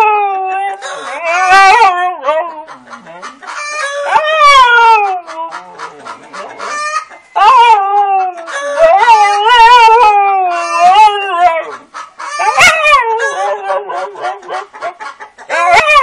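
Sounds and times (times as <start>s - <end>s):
husky howling: 0.0s - 2.7s, 4.0s - 5.5s, 7.4s - 11.7s, 12.4s - 14.7s, 15.5s - 16.0s
chicken cry: 0.0s - 16.0s
chickens clucking: 0.2s - 16.0s.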